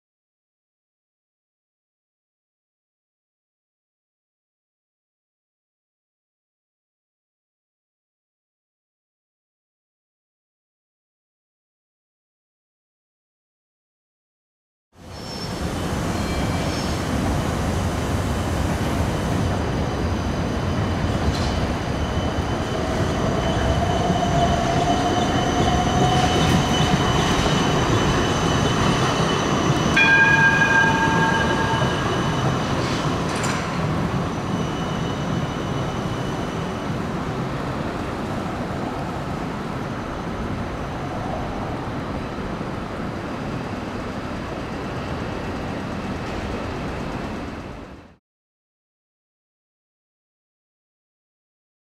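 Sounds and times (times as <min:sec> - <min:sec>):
tram wheels and motors rumbling: 0:15.0 - 0:48.2
brief ringing tone: 0:30.0 - 0:33.3.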